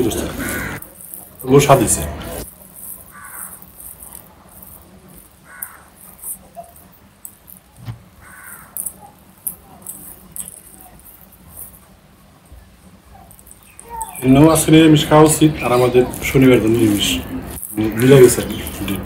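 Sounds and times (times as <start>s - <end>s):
crow cawing: 0.1s - 0.8s, 3.1s - 3.6s, 5.4s - 6.1s, 8.2s - 8.9s.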